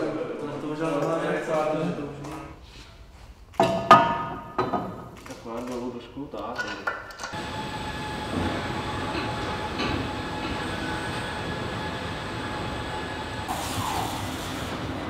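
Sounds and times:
broad hiss: 0:13.5 - 0:15.0.

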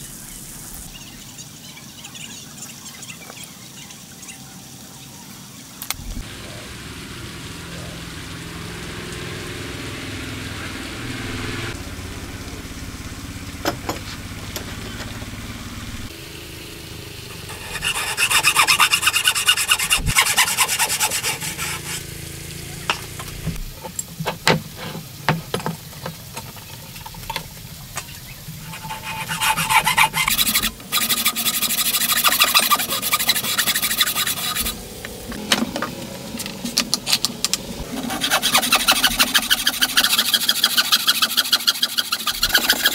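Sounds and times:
soft low hum: 0:06.0 - 0:18.2
hand tool rasping wood: 0:17.4 - 0:22.1, 0:28.6 - 0:34.8, 0:37.9 - 0:42.9.

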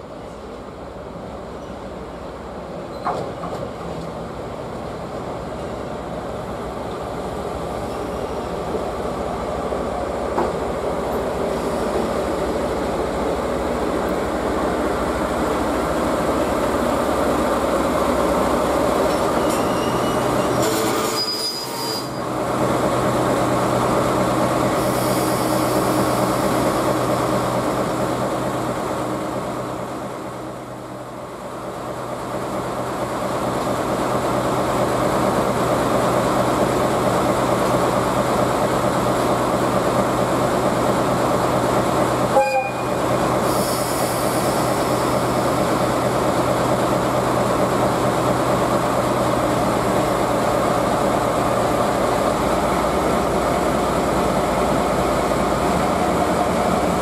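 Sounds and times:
diesel locomotive engine: 0:00.0 - 0:57.0
wheels squealing on rails: 0:19.1 - 0:22.3.

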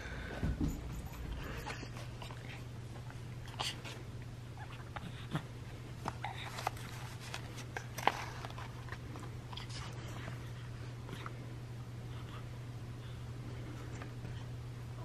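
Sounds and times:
steady low hum: 0:00.0 - 0:15.0
soft handling clicks and rustles: 0:05.7 - 0:11.5, 0:13.5 - 0:14.5.

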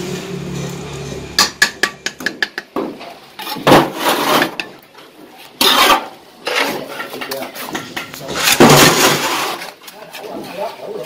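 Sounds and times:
trowel tapping brick: 0:01.4 - 0:02.9
trowel scraping mortar: 0:03.4 - 0:04.8, 0:05.4 - 0:06.9, 0:07.6 - 0:10.8.

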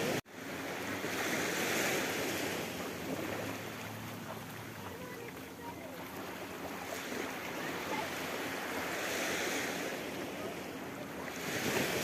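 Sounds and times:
waves washing onto beach: 0:00.0 - 0:12.0.

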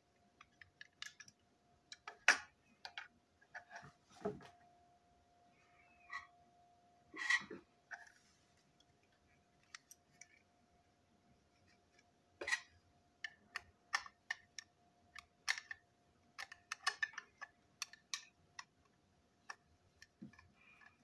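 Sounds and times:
plastic toy parts clicking: 0:00.4 - 0:03.1, 0:12.5 - 0:21.0.

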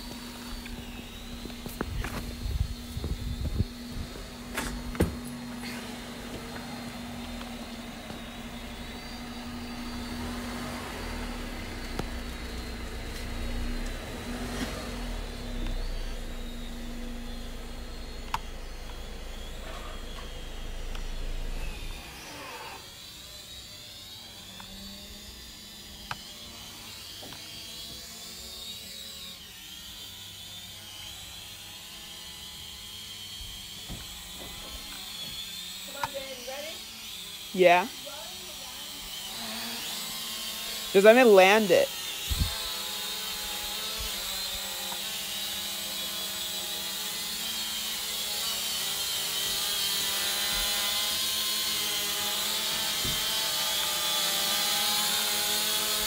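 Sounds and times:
drone motors humming and whining: 0:00.0 - 0:56.0
wind on microphone: 0:00.8 - 0:04.9, 0:42.3 - 0:42.7.

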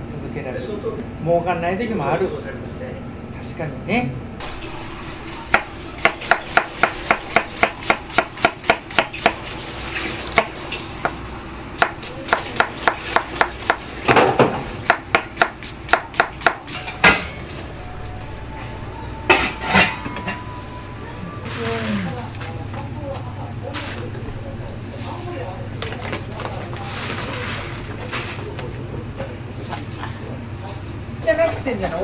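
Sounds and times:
knife chopping on wooden board: 0:05.5 - 0:09.5, 0:11.8 - 0:16.7.

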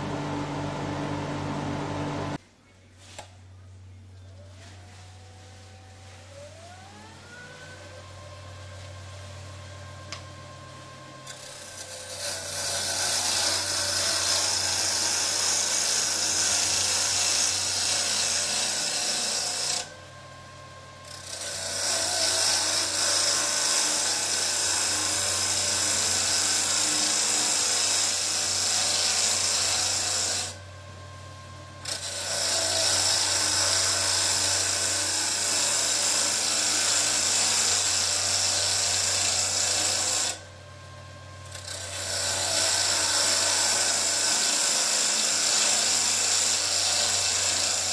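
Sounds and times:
lathe motor hum: 0:00.0 - 0:02.4, 0:05.2 - 0:47.9
turning tool scraping wood: 0:21.2 - 0:30.6, 0:41.5 - 0:47.9.

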